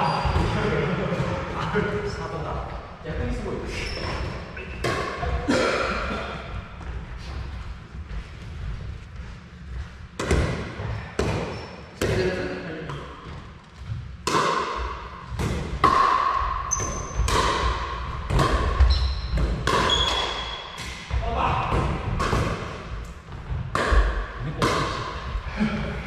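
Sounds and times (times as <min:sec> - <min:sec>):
ball bouncing on wooden floor: 0:12.9 - 0:25.2.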